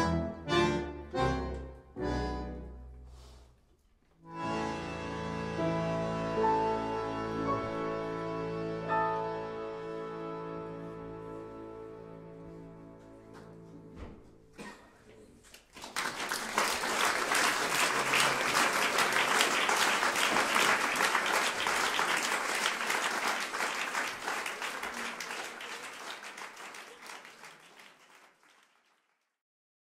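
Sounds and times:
audience applauding: 15.5 - 29.4.

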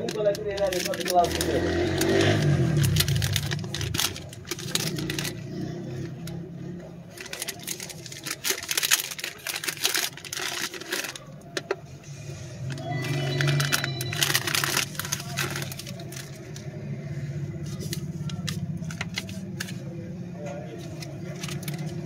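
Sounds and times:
plastic pouch crinkling: 0.0 - 5.4, 7.1 - 11.8, 12.7 - 16.7, 17.6 - 19.9, 20.8 - 22.0.

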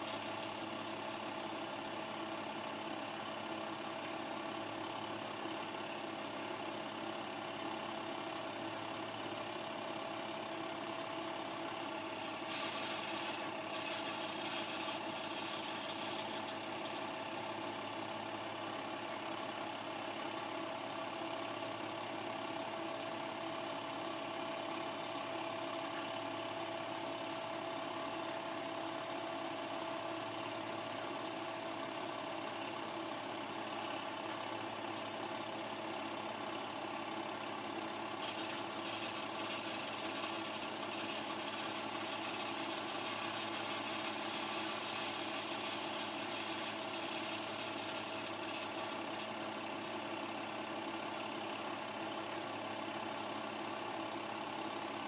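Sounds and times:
film projector clattering: 12.2 - 17.0, 38.0 - 52.6.

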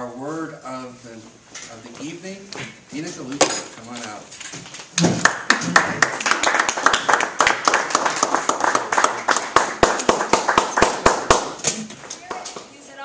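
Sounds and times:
close hand claps: 5.0 - 12.7
audience applauding: 5.2 - 11.6.

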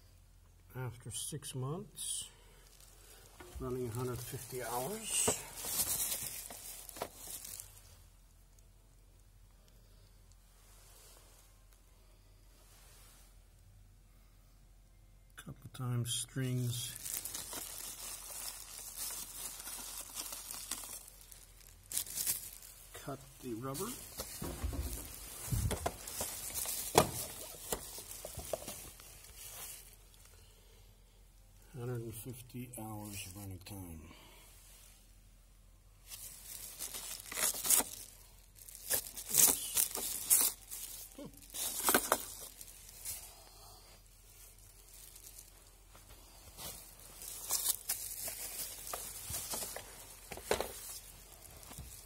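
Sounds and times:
rustling crinkling handling noise: 2.6 - 8.7, 16.5 - 30.8, 32.7 - 34.0, 35.9 - 52.0.

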